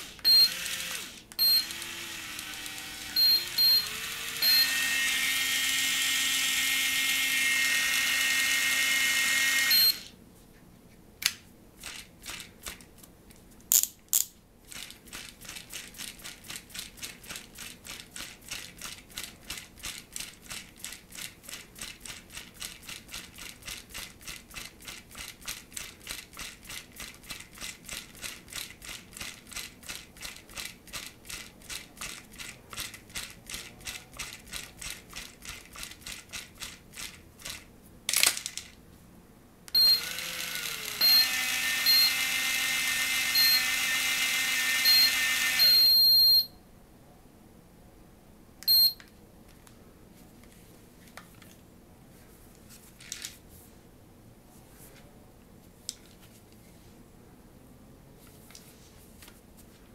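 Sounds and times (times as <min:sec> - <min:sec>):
fishing reel motor whirring: 0:00.5 - 0:09.8, 0:40.0 - 0:45.6.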